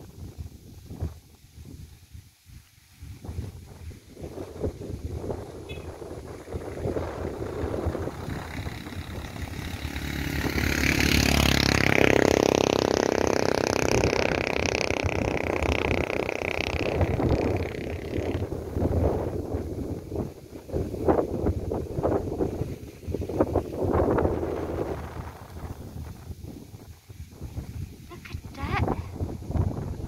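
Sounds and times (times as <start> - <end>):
wind buffeting microphone: 0.0 - 30.0
passing vehicle engine: 4.3 - 20.2.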